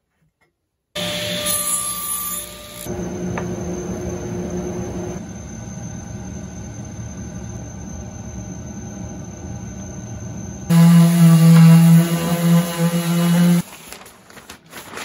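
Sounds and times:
table saw cutting wood: 1.0 - 3.8, 10.7 - 13.6
machine hum: 2.6 - 15.0.

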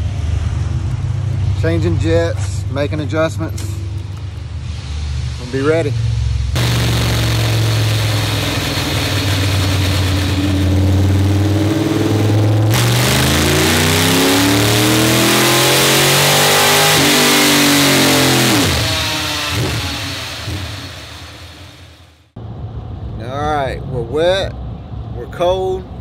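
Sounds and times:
race car engine revving on dyno: 5.8 - 21.9.

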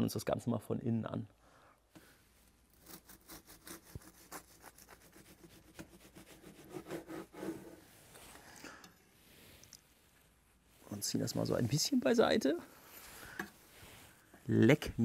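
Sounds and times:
knife sawing through bread crust: 2.7 - 7.8.

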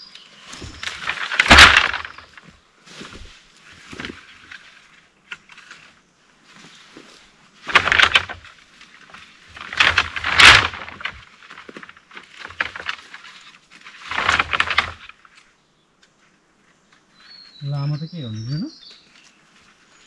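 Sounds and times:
bamboo stems rustling and crackling: 0.0 - 17.6, 18.9 - 20.0.

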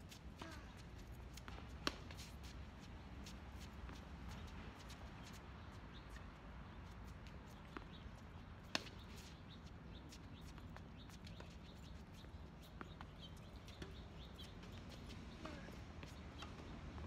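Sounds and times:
faint birds chirping: 3.6 - 17.0.

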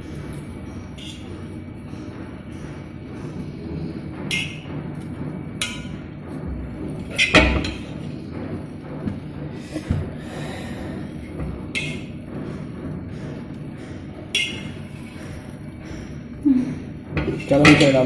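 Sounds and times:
metal plates clinking: 7.0 - 8.0, 14.3 - 15.1.

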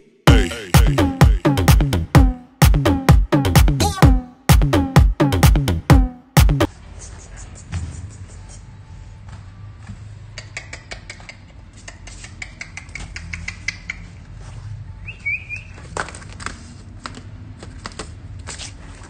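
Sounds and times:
puppy claws clicking on tile: 10.4 - 14.2.

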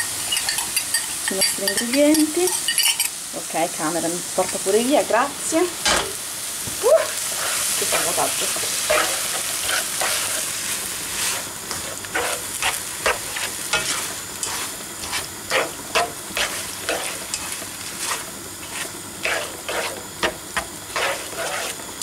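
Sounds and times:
food sizzling in a frying pan: 0.0 - 22.0
plastic spatula scraping pan: 18.0 - 20.0, 20.9 - 21.8.

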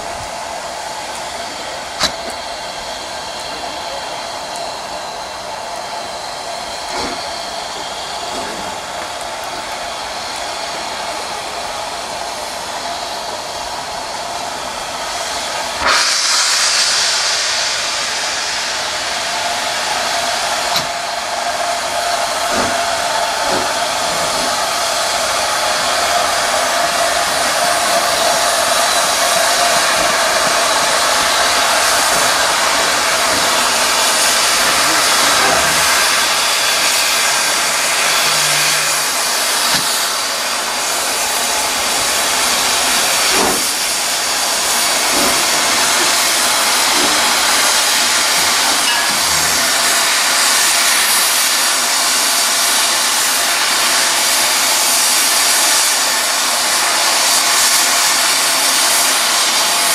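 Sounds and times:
locomotive steam hissing: 0.0 - 59.9
steady tone: 37.3 - 40.1.

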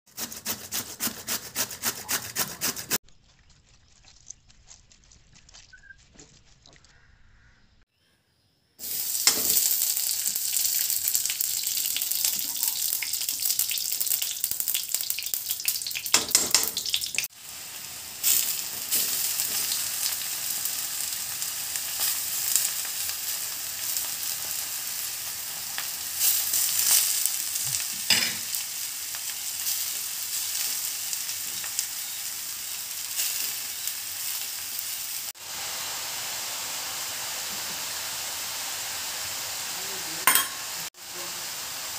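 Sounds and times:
food sizzling in a wok: 8.8 - 41.9.

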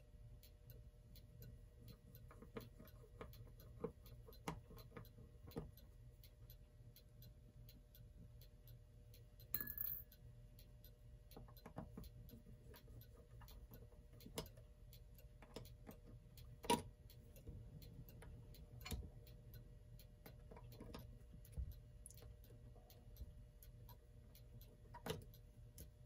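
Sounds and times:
faint clock ticking: 0.0 - 26.0
screwdriver clicking on clock parts: 11.3 - 26.0.

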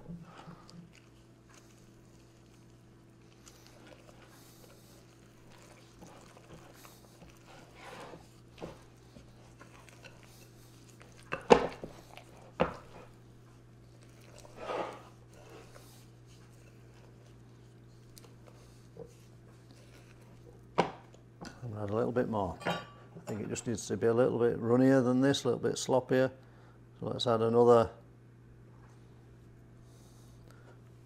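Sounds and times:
spoon scraping and squelching batter: 0.0 - 22.0.

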